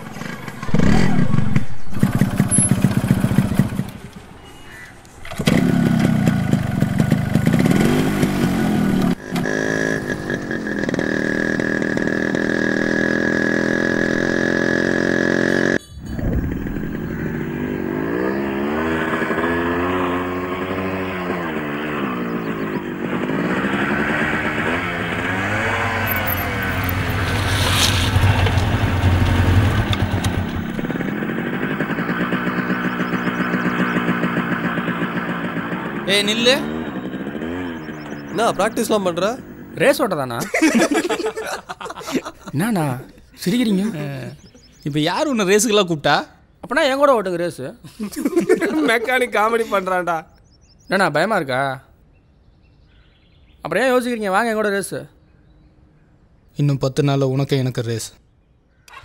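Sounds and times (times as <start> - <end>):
motorcycle engine revving: 0.0 - 4.2, 5.2 - 42.4.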